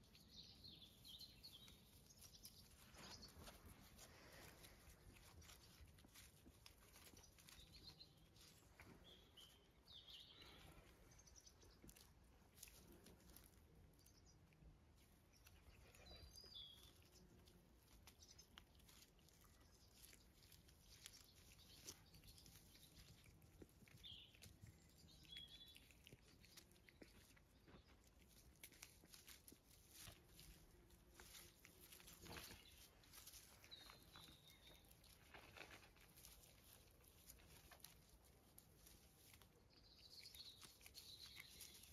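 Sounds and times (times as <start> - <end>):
puppies gnawing a stick: 0.0 - 41.9
rustling in grass: 0.0 - 41.9.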